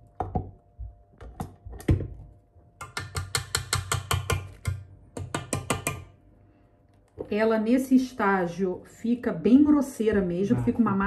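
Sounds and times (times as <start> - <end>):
whisk tapping metal bowl: 2.8 - 6.0.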